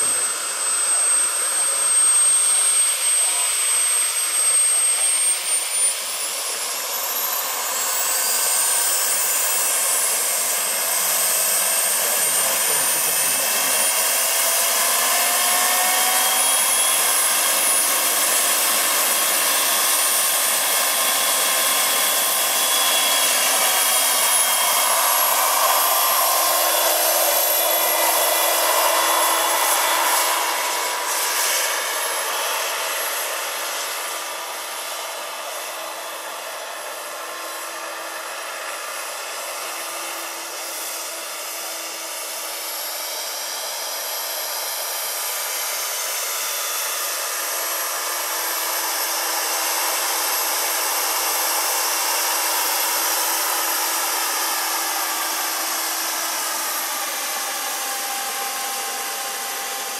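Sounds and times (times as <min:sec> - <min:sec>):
rotors rushing: 0:00.0 - 0:19.7
gas turbine engine whine: 0:00.0 - 0:59.9.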